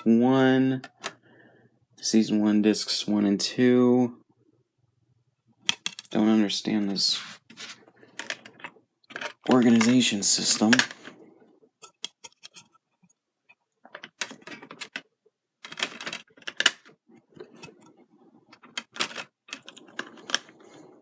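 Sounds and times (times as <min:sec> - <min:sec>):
plastic disc case clicks and clatter: 0:08.2 - 0:11.1, 0:13.9 - 0:17.7, 0:18.6 - 0:20.6.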